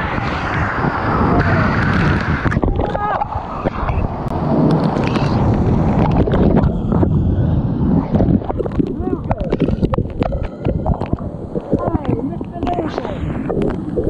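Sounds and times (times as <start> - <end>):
water splashing and churning: 0.0 - 14.0.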